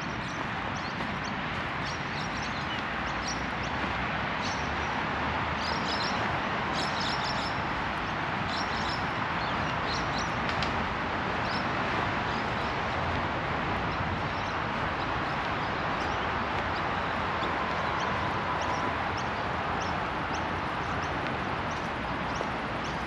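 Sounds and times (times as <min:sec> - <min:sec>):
road traffic hum: 0:00.0 - 0:23.0.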